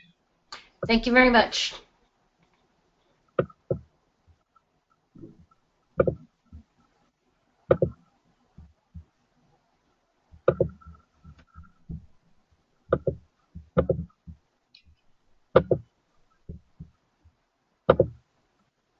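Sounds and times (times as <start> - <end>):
dull knocks and thumps: 3.4 - 3.9, 5.2 - 6.8, 7.7 - 9.2, 10.3 - 18.2.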